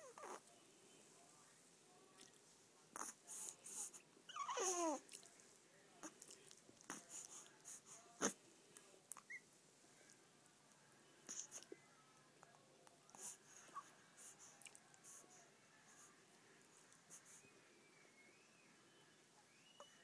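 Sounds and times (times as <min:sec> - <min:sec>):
baby whimpering: 0:00.0 - 0:00.4, 0:03.8 - 0:05.0.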